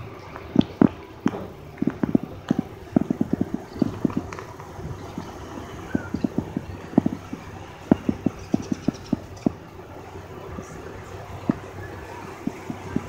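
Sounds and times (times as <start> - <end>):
steady low background noise: 0.0 - 13.0
sharp clacking knocks: 0.6 - 5.4, 6.0 - 9.6, 12.4 - 13.0.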